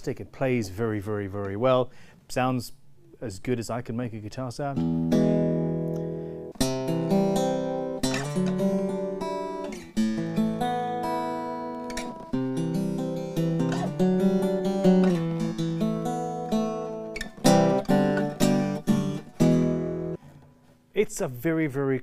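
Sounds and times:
jazz guitar strummed chords: 4.8s - 20.6s.

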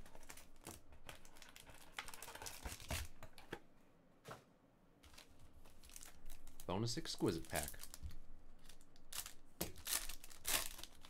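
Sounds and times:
foil pack crinkling and rustling: 0.0s - 3.4s, 5.0s - 11.0s.

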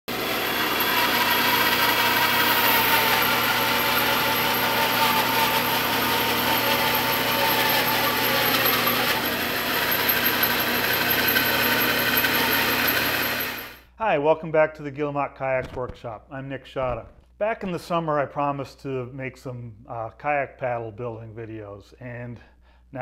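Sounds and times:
bandsaw cutting wood: 0.1s - 13.8s.

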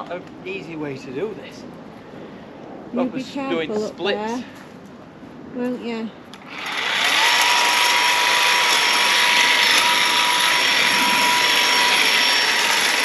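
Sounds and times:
power tool whining and buzzing: 6.4s - 13.0s.

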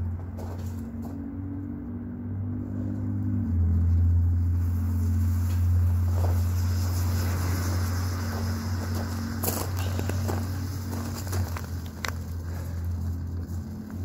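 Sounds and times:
low mechanical hum: 0.0s - 14.0s
smoke device hissing: 4.6s - 11.2s.

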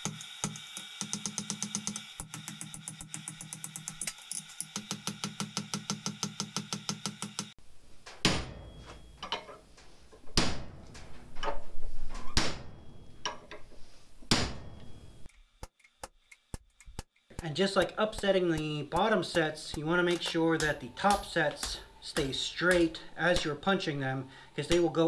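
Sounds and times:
hammer striking metal on anvil: 17.3s - 23.8s.

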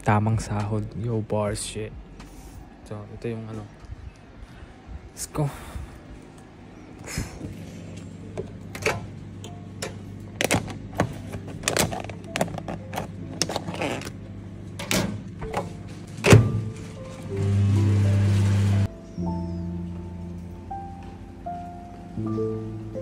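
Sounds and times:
microwave humming: 6.4s - 18.9s.

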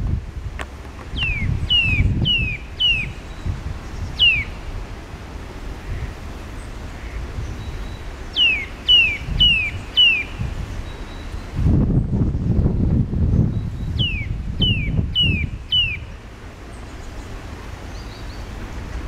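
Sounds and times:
nuthatch whistled calls: 1.2s - 4.6s, 7.5s - 11.5s, 13.8s - 16.1s.

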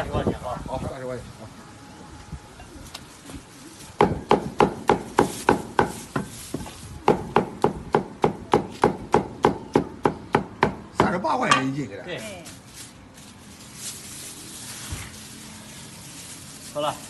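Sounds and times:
cleaver chopping on wooden block: 7.0s - 11.2s.

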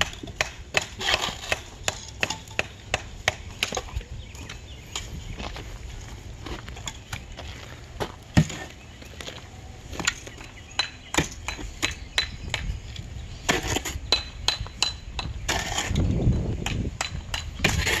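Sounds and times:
rough scraping: 0.8s - 2.6s, 13.4s - 14.2s, 15.4s - 16.3s, 17.6s - 18.0s.

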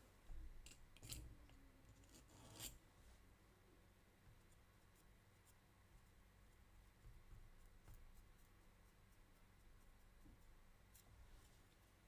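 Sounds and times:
faint scratches on clay: 2.0s - 3.3s, 4.3s - 12.0s.

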